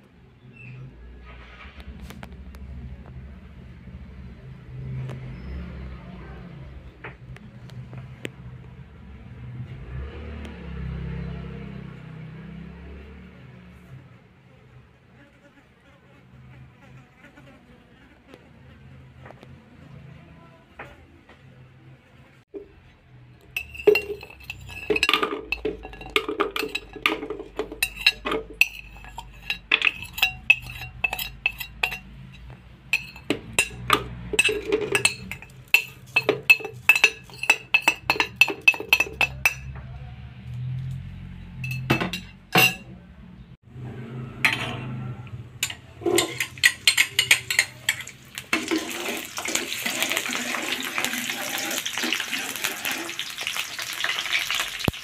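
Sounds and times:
utensils clinking while grinding: 23.5 - 39.7, 41.6 - 42.9, 45.6 - 55.0
oil sizzling in a wok: 46.4 - 55.0.

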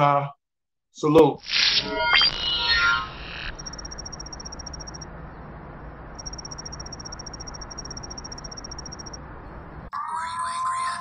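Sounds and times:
rapid high-pitched pulsing chirp: 2.6 - 5.5, 6.1 - 9.2
low steady hum: 3.5 - 9.9.

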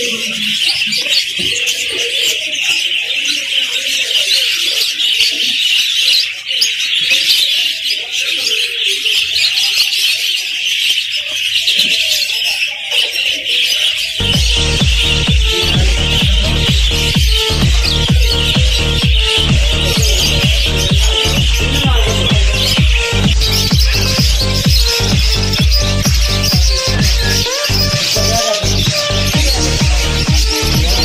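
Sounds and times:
birds chirping and twittering: 0.0 - 31.0
electronic music with heavy beat: 14.2 - 31.0.

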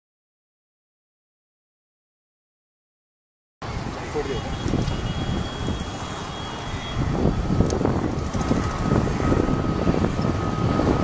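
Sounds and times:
distant jet engine rumble: 3.6 - 11.0.

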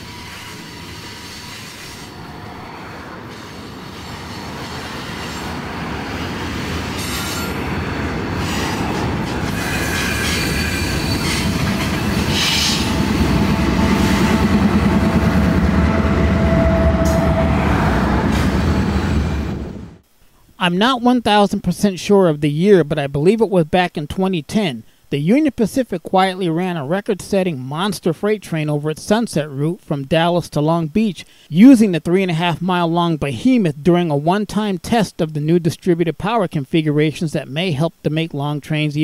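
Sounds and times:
freight train rumbling past: 0.0 - 20.0
wheel flanges squealing: 8.4 - 17.5.

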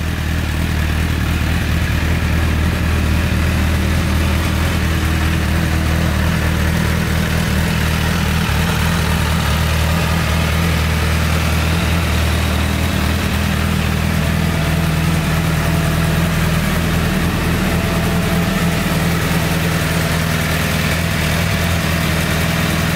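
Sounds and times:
motorcycle engine idling: 0.0 - 22.9.

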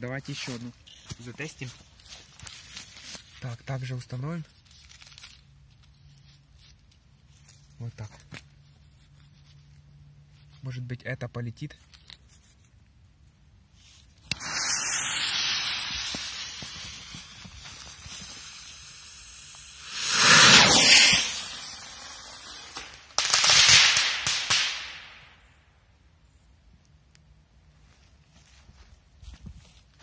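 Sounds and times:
firework rocket launching hiss: 13.8 - 25.4
firework sharp burst: 14.2 - 25.4
firework rushing surge: 14.3 - 25.2.

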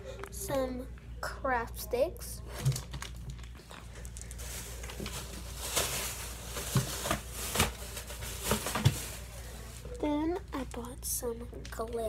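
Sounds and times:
rustling packaging handling: 2.5 - 10.9.

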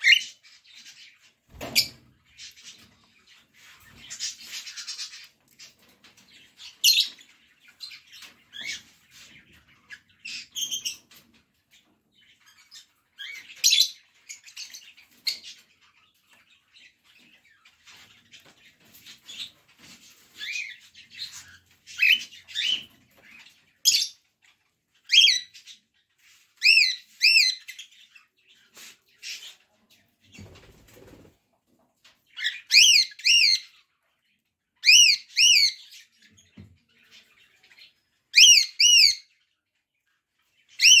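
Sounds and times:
cockatiel chirping: 32.4 - 33.7, 34.8 - 36.0, 37.8 - 39.3, 40.7 - 41.0.

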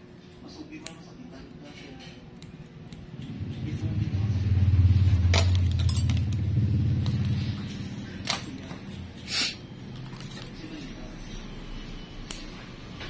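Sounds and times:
low rumble: 3.2 - 8.1
sharp metallic clinks: 5.3 - 7.2.

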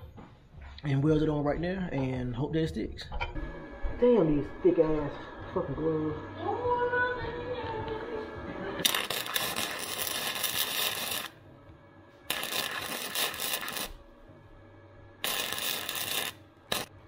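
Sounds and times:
welding arc crackling: 8.8 - 11.4, 12.3 - 14.0, 15.2 - 17.0.

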